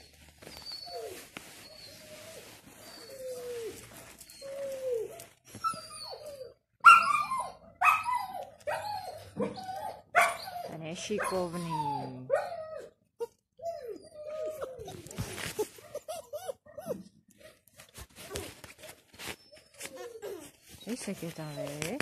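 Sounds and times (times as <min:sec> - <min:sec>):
puppy whimpering: 0:00.0 - 0:22.0
puppy yelping barks: 0:06.8 - 0:12.9.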